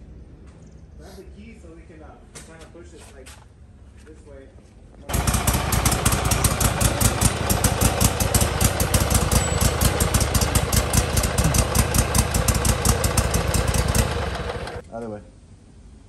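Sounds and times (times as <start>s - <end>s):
engine running with rapid pulse: 5.1s - 14.8s.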